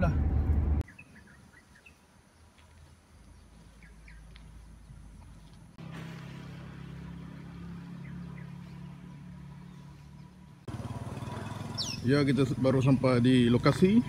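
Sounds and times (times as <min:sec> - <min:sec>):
low engine hum: 0:00.0 - 0:00.8, 0:03.2 - 0:14.0
bird chirps: 0:00.8 - 0:02.5, 0:03.2 - 0:05.1, 0:11.6 - 0:12.1.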